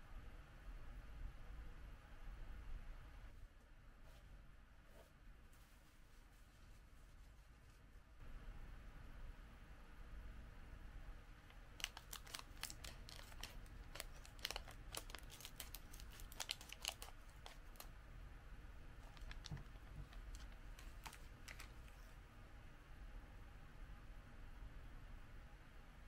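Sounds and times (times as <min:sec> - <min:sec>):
plastic wrapper crinkling: 0:11.5 - 0:17.9, 0:19.0 - 0:22.1
scissors cutting plastic: 0:11.8 - 0:17.9.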